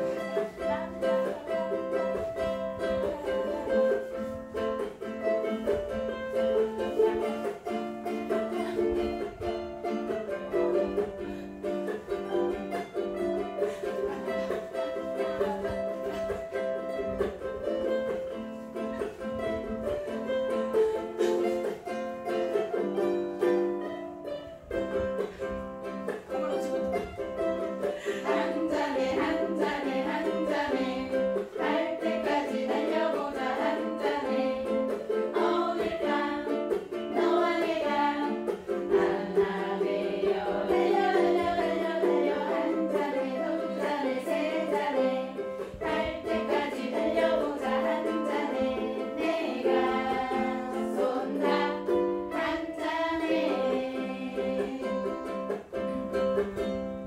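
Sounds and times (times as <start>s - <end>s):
ukuleles strummed together: 0.0s - 57.0s
voices singing along: 27.9s - 55.3s.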